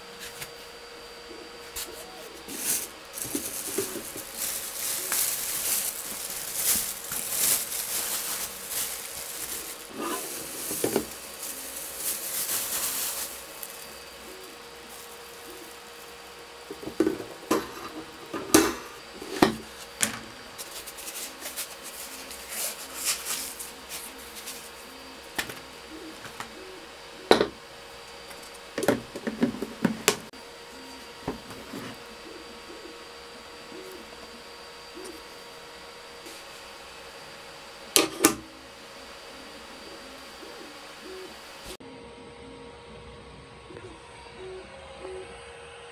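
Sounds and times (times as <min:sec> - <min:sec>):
plastic bag crinkling: 0:02.4 - 0:17.5.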